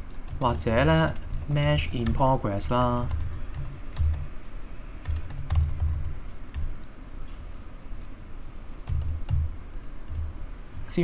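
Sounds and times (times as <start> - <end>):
typing on computer keyboard: 0.0 - 8.1, 8.8 - 10.3.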